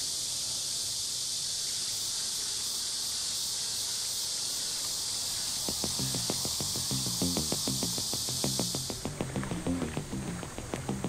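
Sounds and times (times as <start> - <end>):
insects droning: 0.0 - 11.0
plucked guitar music: 5.7 - 11.0.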